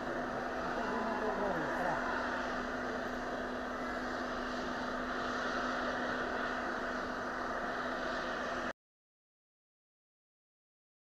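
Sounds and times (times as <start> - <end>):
low steady hum: 0.0 - 8.7
helicopter engine drone: 0.0 - 8.8.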